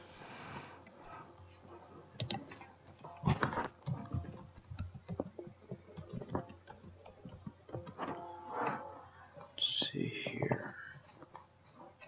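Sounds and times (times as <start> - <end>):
keyboard typing clicks: 2.2 - 3.0, 3.8 - 8.2.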